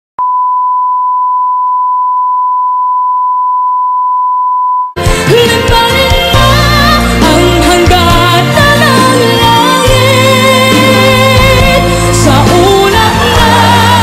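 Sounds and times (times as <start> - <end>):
steady test tone beep: 0.2 - 5.0
pop music with singing: 5.0 - 14.0.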